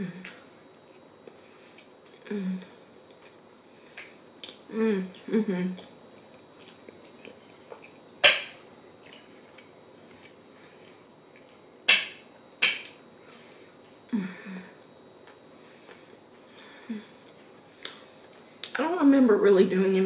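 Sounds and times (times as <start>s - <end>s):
person humming: 0.0s - 0.4s, 2.2s - 2.8s, 4.7s - 5.8s, 14.1s - 14.8s
chewing sounds: 5.8s - 8.0s, 9.0s - 11.6s.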